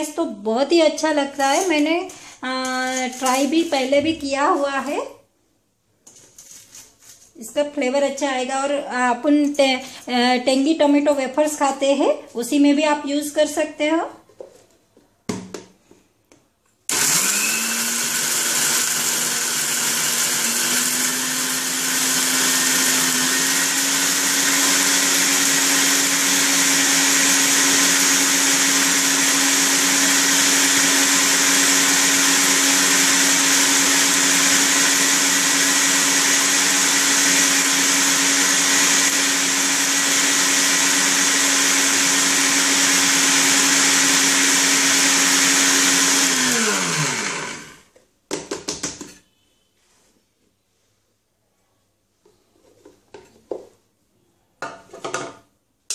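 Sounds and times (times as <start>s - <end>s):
mixer grinder running: 16.9s - 47.9s.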